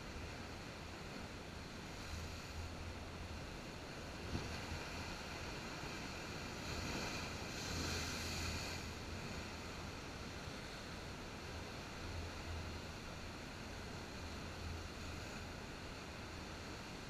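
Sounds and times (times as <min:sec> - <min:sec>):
wind rumble on microphone: 0:01.8 - 0:13.0.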